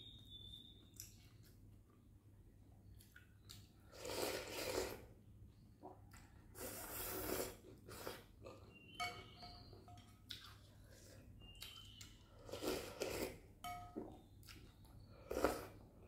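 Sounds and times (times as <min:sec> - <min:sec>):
person slurping noodles: 0:03.9 - 0:05.1, 0:06.6 - 0:08.3, 0:12.4 - 0:13.4
spoon clink: 0:08.9 - 0:10.2, 0:13.6 - 0:14.2.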